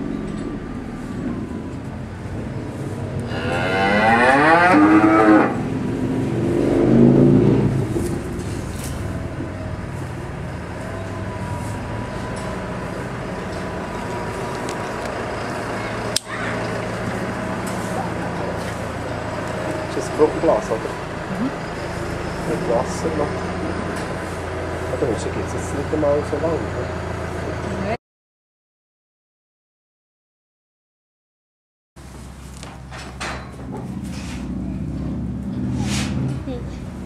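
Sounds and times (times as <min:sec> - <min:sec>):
faint mechanical hum: 0:00.0 - 0:28.0, 0:32.0 - 0:37.0
cow mooing: 0:03.2 - 0:05.9.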